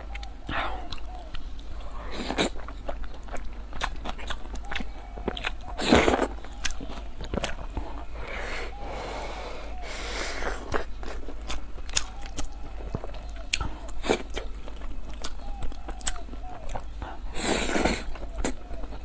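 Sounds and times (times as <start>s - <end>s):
wet chewing with mouth clicks: 0.0s - 19.0s
noodles slurped: 17.3s - 18.6s.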